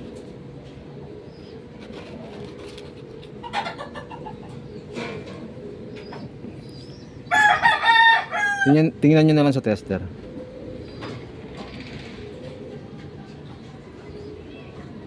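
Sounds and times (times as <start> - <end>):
chickens clucking: 0.0 - 15.0
rooster crowing: 7.3 - 9.0.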